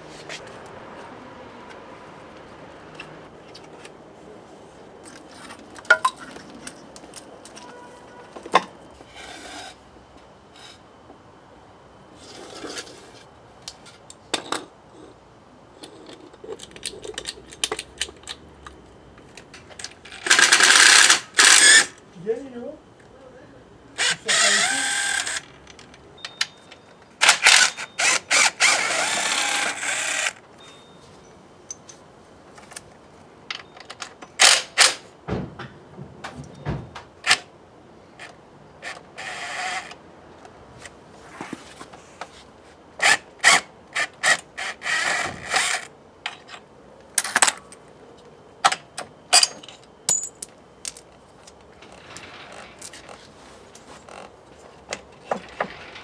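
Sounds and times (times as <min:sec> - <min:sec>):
clatter of tools and parts: 0:05.0 - 0:08.7, 0:19.3 - 0:21.6, 0:48.6 - 0:56.0
cordless drill running: 0:24.0 - 0:25.4, 0:27.2 - 0:30.4.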